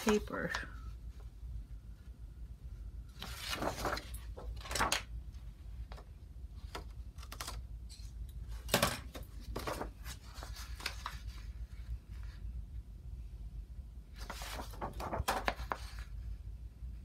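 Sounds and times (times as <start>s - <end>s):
paper rustling and crinkling: 3.1s - 5.2s, 8.5s - 12.4s, 14.1s - 16.2s.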